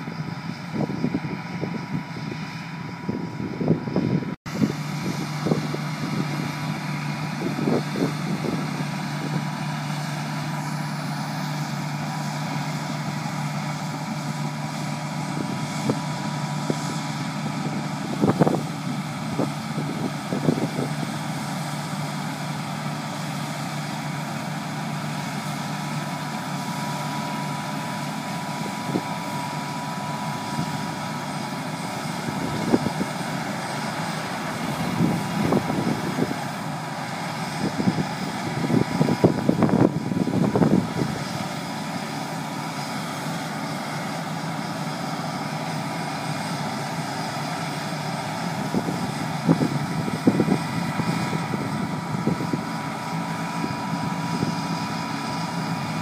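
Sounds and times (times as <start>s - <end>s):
combine harvester engine drone: 0.0s - 56.0s
high machinery whine: 0.0s - 56.0s.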